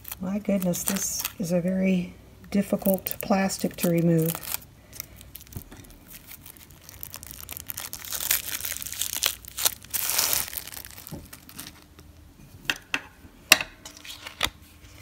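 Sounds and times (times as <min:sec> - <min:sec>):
plastic shrink-wrap crinkling: 0:00.0 - 0:01.9, 0:02.6 - 0:12.2.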